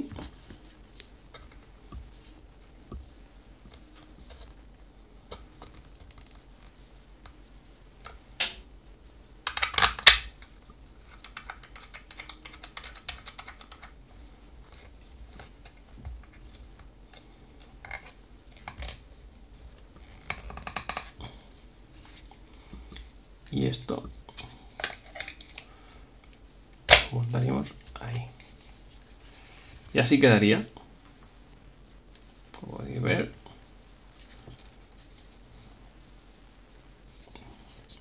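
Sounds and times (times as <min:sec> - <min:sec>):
plastic parts clicking and rattling: 0:09.4 - 0:10.4, 0:11.0 - 0:14.0, 0:24.4 - 0:25.7.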